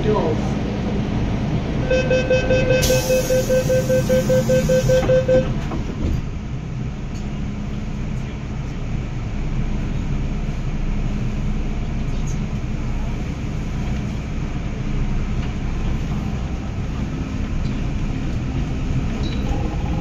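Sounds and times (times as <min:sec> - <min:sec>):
train low rumble: 0:00.0 - 0:20.0
rapid door warning beeps: 0:01.9 - 0:05.5.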